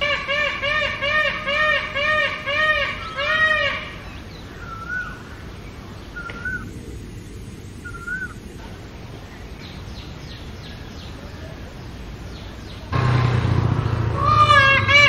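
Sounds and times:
peacock calling: 0:00.0 - 0:06.7, 0:07.8 - 0:08.4, 0:12.4 - 0:15.0
faint chirps: 0:04.2 - 0:13.0.

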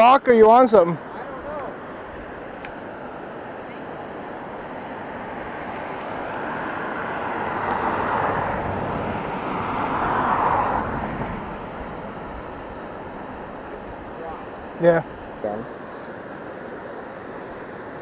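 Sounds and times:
vehicles passing: 0:00.0 - 0:18.0.

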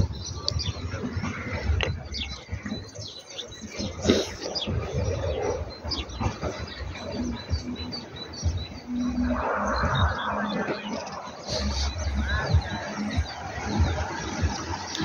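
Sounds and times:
small birds chirping: 0:00.0 - 0:15.0
low rumble: 0:04.6 - 0:14.9.

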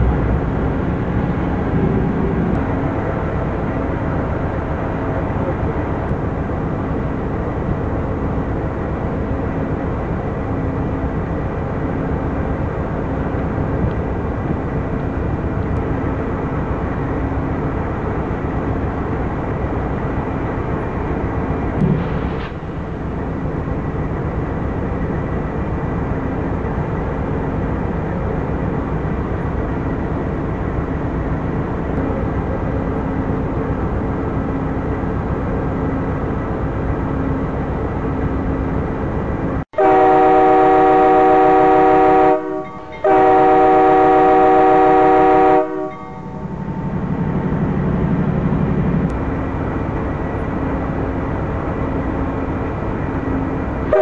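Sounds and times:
train air horn blasts: 0:39.8 - 0:46.3.

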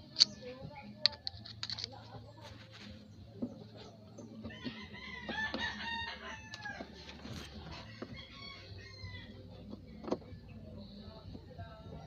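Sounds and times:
rooster crowing: 0:04.5 - 0:07.0, 0:07.7 - 0:09.4.

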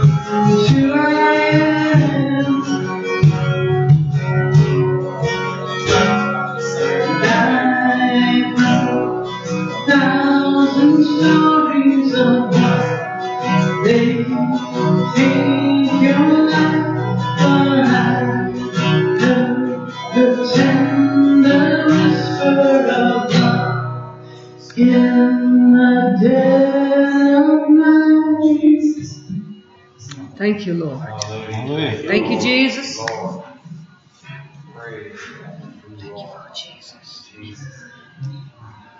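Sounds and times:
person singing: 0:00.0 - 0:03.2, 0:05.7 - 0:30.2
strummed acoustic guitar: 0:00.0 - 0:36.6.

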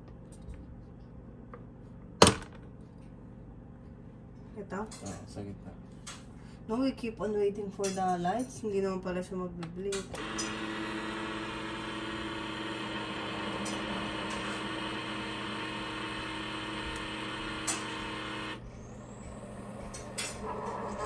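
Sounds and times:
coffee maker humming: 0:10.1 - 0:21.0.

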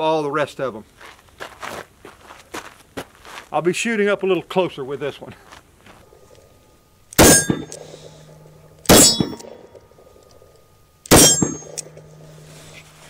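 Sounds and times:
ring of struck steel target: 0:07.2 - 0:10.1, 0:11.1 - 0:13.0.

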